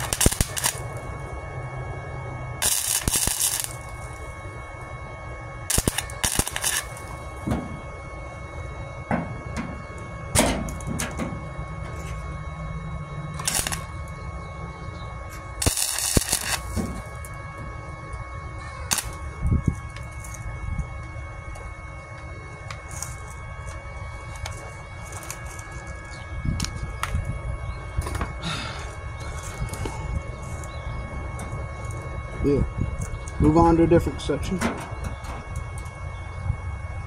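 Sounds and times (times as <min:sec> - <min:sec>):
welding arc crackling: 0:00.0 - 0:01.6, 0:02.6 - 0:04.9, 0:05.5 - 0:08.8, 0:13.1 - 0:14.3, 0:15.2 - 0:18.2, 0:18.8 - 0:21.7, 0:22.6 - 0:27.4.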